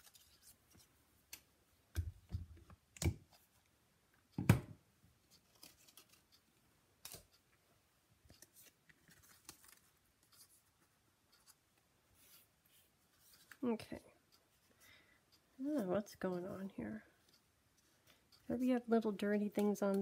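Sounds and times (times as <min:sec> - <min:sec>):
paper rustling: 0:05.3 - 0:06.4, 0:08.3 - 0:11.6.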